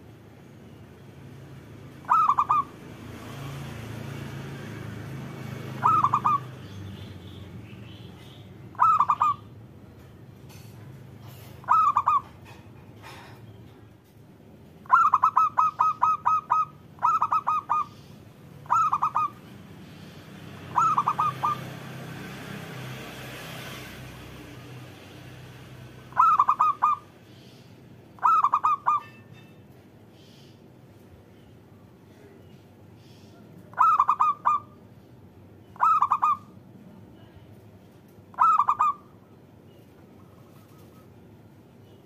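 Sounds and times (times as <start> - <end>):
dove cooing: 2.0 - 2.7, 5.6 - 6.5, 8.7 - 9.4, 11.2 - 12.6, 14.8 - 18.0, 18.6 - 19.5, 20.6 - 21.8, 26.1 - 27.0, 28.2 - 29.1, 33.7 - 34.8, 35.8 - 36.5, 38.3 - 39.0.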